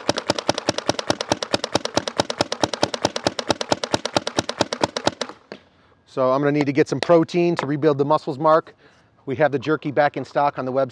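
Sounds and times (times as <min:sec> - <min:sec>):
paintball marker rapid firing: 0:00.0 - 0:05.6.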